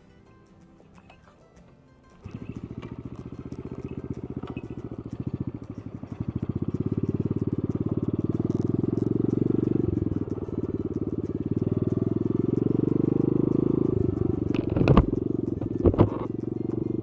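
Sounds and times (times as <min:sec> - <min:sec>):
small motorcycle engine running: 0:02.1 - 0:17.0.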